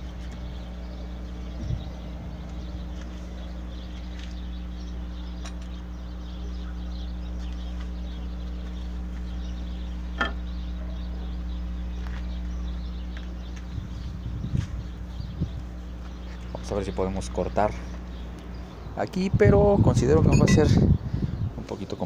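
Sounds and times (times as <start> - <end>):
low hum: 20.2 - 21.3.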